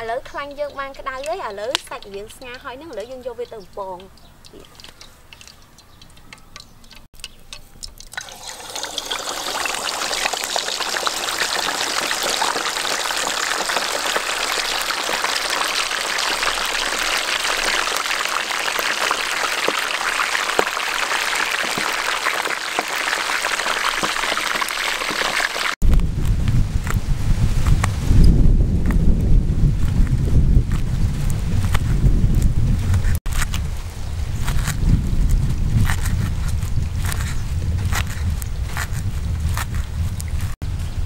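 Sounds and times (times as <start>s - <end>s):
pork sizzling in hot oil: 6.9s - 28.2s.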